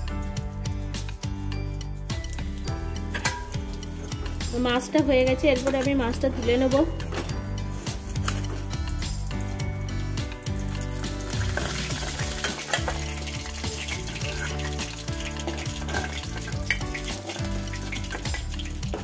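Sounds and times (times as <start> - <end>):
fish sizzling in hot oil: 1.1 - 19.0.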